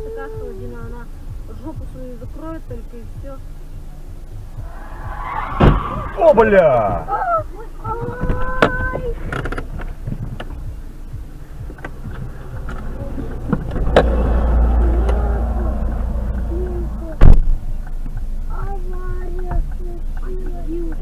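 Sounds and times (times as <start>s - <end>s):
low rumble: 0.0s - 19.2s
sharp loud thump: 4.6s - 7.1s, 17.1s - 17.7s.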